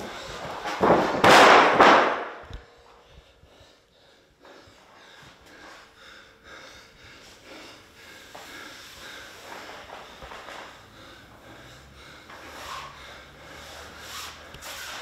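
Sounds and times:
man breathing hard and snorting: 0.0s - 1.2s, 2.4s - 15.0s.

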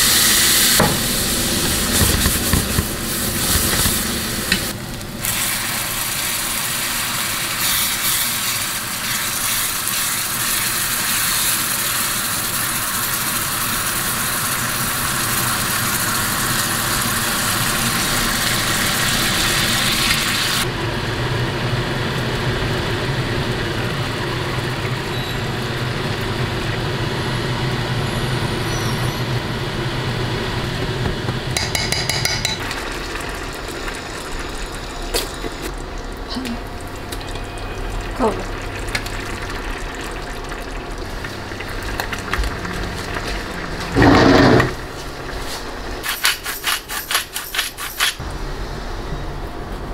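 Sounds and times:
rice sizzling in a frying pan: 0.0s - 28.4s.

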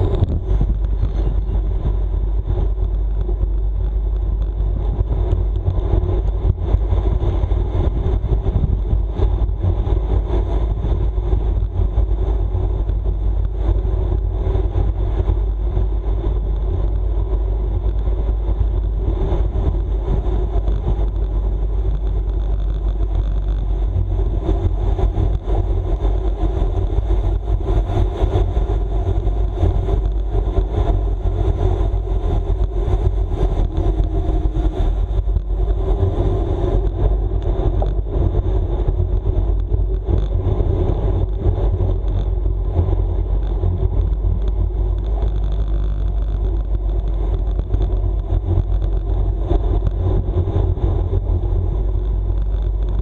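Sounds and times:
faint high whine: 0.0s - 8.8s
bicycle road rumble: 0.0s - 53.0s
wind rush: 0.0s - 53.0s.

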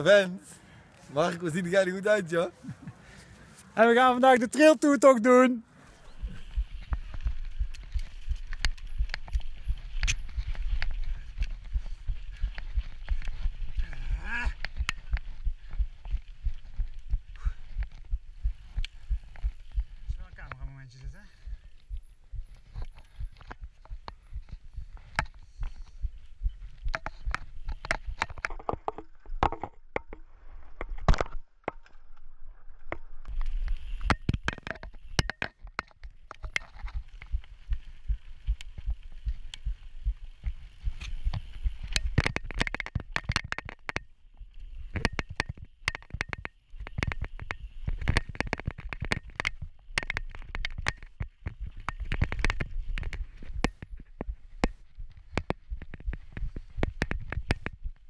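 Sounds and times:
bike rattling knocks and clicks: 34.0s - 44.1s, 44.9s - 58.0s.

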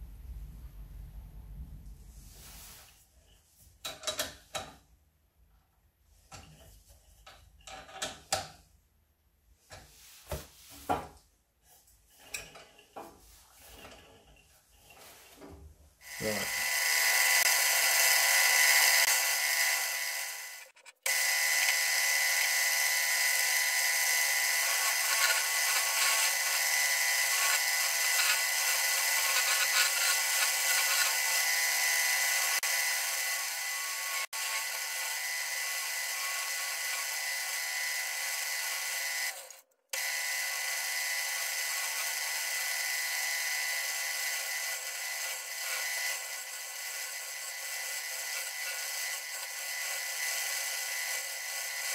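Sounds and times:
turning tool cutting wood: 16.0s - 51.9s
wood lathe whining: 16.0s - 51.9s.

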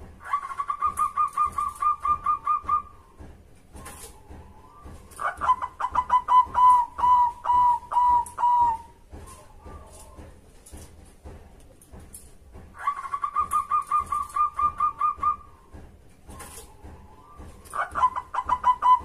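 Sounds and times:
dove cooing: 0.2s - 3.0s, 3.8s - 10.2s, 12.8s - 15.6s, 16.4s - 19.0s.

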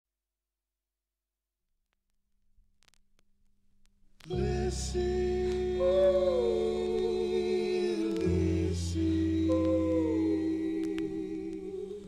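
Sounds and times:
held chords: 4.2s - 12.0s.

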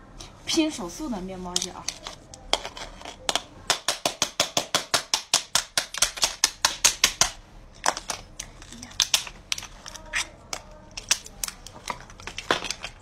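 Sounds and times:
fast sharp taps: 3.3s - 7.4s.

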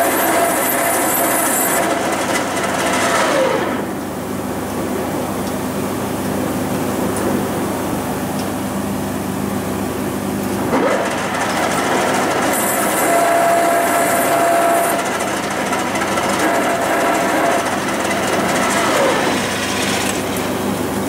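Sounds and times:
metal lathe cutting: 0.0s - 3.9s, 10.7s - 20.7s.

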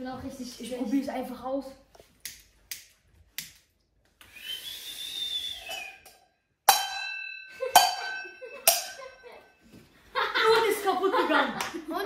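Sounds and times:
breathy rising and falling whistle: 4.2s - 6.2s
clangs on metal saucepan: 6.7s - 9.2s.

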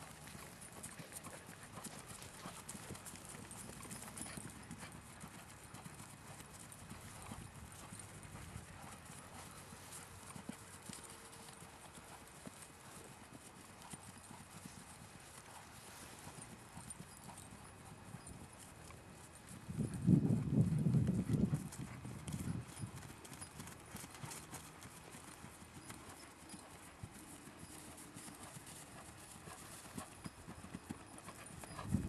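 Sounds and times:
faint hoofbeats on grass: 0.0s - 32.0s.

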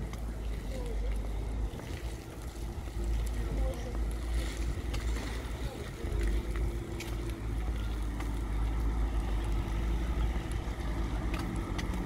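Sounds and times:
low rumble of traffic: 0.0s - 12.0s.

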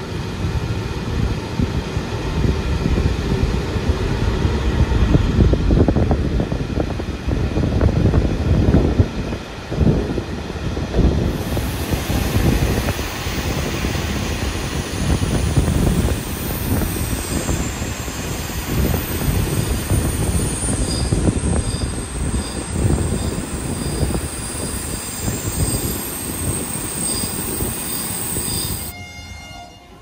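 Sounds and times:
train rumbling on rails: 0.0s - 30.0s
high wheel squeal: 11.6s - 30.0s.

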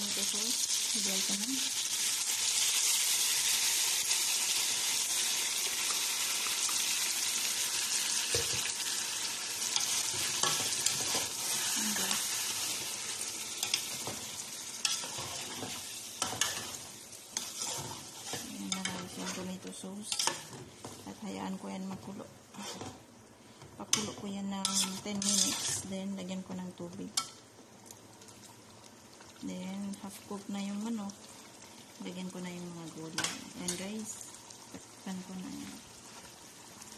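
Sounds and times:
chicken sizzling in a pot: 0.0s - 21.5s, 23.9s - 26.4s, 27.0s - 36.9s
spatula scraping a pot: 17.4s - 19.4s, 22.6s - 23.0s, 24.6s - 25.9s.

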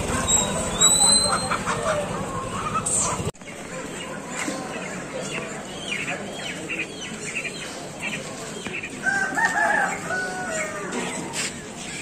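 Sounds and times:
rooster crowing: 9.0s - 11.0s.

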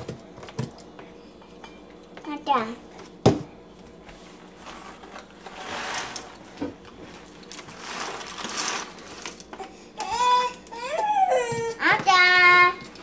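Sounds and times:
coffee grinder grinding beans: 4.4s - 13.0s.

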